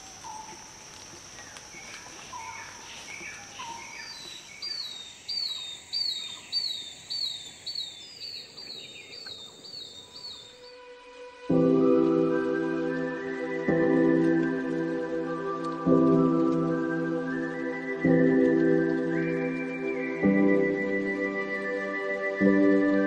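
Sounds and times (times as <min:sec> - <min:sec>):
bird chirps: 0:00.0 - 0:10.8, 0:16.6 - 0:23.0.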